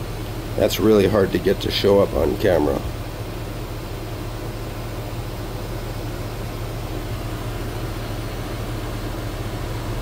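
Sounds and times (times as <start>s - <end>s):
mechanical hum with hiss: 0.0s - 10.0s.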